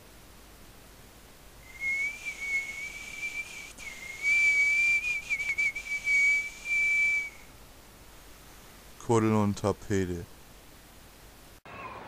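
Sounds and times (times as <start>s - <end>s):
person whistling: 1.7s - 7.5s.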